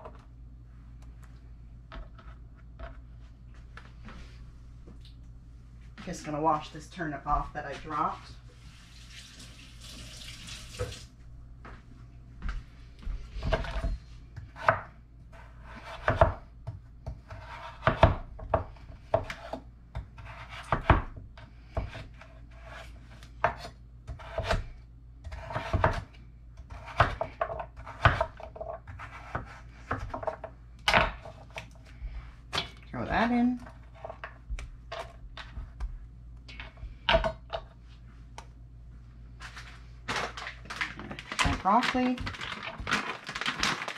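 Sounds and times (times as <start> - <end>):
running tap: 8.8 - 11.1.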